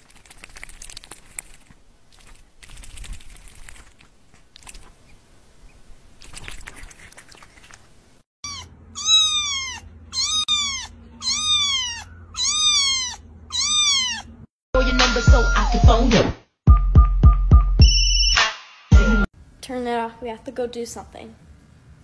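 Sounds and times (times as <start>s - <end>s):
cat meowing: 8.4s - 14.5s.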